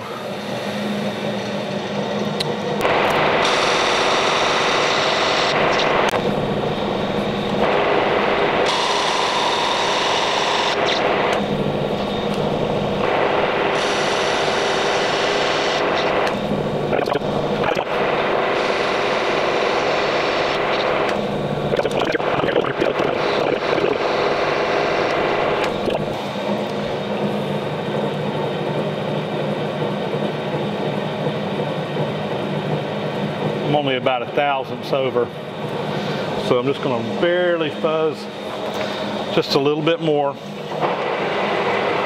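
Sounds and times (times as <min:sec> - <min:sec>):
low machine hum: 0:00.0 - 0:42.0
metal lathe cutting hiss: 0:03.1 - 0:21.5.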